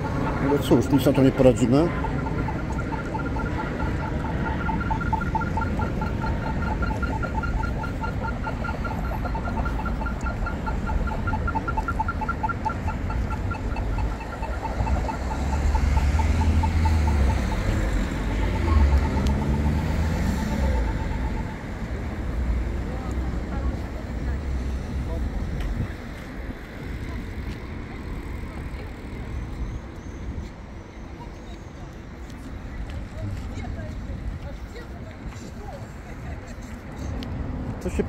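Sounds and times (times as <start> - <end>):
vehicle passing: 0.0 - 29.6
crossing signal beeping: 0.0 - 35.7
traffic rumble: 0.0 - 38.0.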